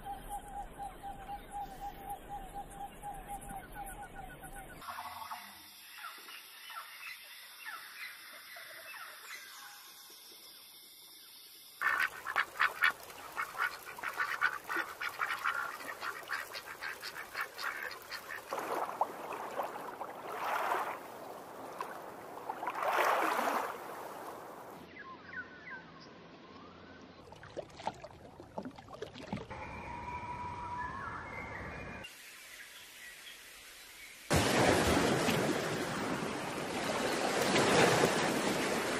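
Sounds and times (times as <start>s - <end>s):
ducks quacking: 11.8s - 18.7s
birds chirping: 11.8s - 18.9s.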